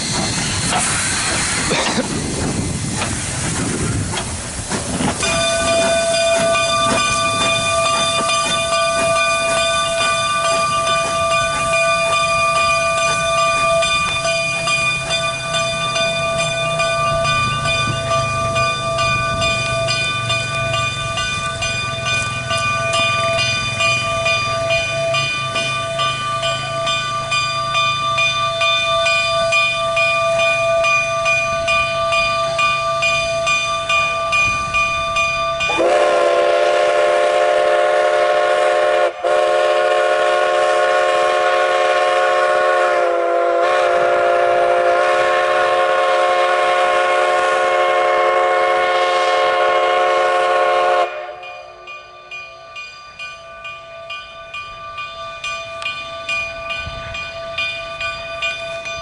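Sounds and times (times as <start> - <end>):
steam locomotive exhaust chuff: 0.0 - 33.7, 34.4 - 52.1
chime steam whistle blast: 5.2 - 19.3, 35.6 - 52.9.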